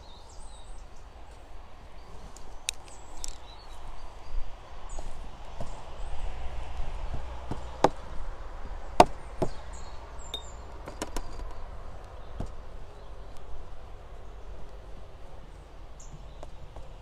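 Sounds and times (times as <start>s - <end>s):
low outdoor rumble: 0.0s - 17.0s
sharp knocks and clicks: 10.3s - 11.6s.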